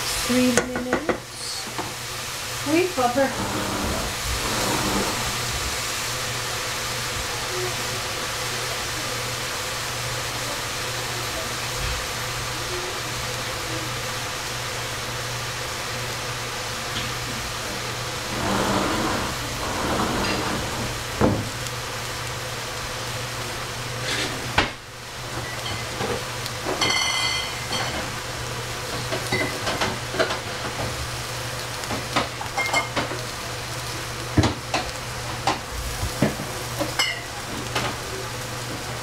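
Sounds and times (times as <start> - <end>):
vegetables sizzling in oil: 0.0 - 39.0
spatula scraping a pan: 3.0 - 5.6, 18.2 - 21.0, 24.0 - 24.5.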